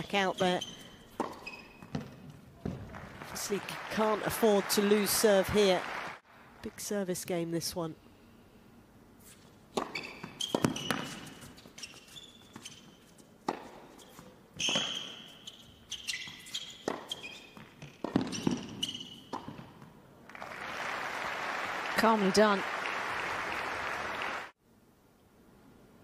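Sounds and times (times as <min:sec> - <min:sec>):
shoes squeaking on court: 0:00.0 - 0:02.8, 0:09.2 - 0:19.9
ball bouncing: 0:01.1 - 0:03.0, 0:09.8 - 0:11.3, 0:16.8 - 0:19.9
crowd applause: 0:02.8 - 0:06.2, 0:20.3 - 0:24.6
racket striking ball: 0:09.7 - 0:11.3, 0:16.8 - 0:19.8.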